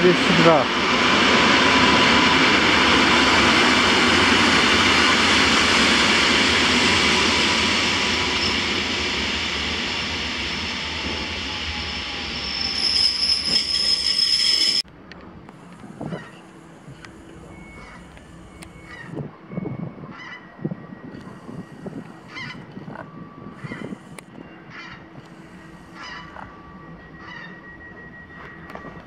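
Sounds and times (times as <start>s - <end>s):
electric train running on tracks: 0.0s - 29.0s
wheel squeal on rails: 1.6s - 14.8s, 21.2s - 29.0s.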